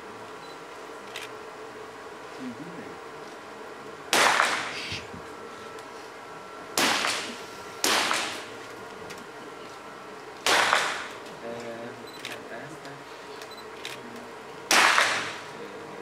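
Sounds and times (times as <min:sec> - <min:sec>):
pistol shots: 0:04.1 - 0:04.8, 0:06.8 - 0:08.5, 0:10.4 - 0:11.2, 0:14.7 - 0:15.5.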